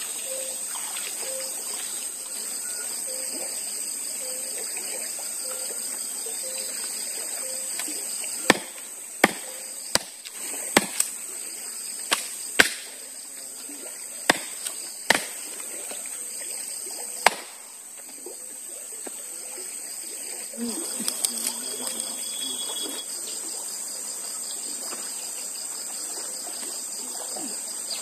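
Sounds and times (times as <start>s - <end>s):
wood chopping strikes: 8.5s - 11.1s, 12.1s - 13.0s, 14.3s - 15.4s, 17.2s - 17.7s.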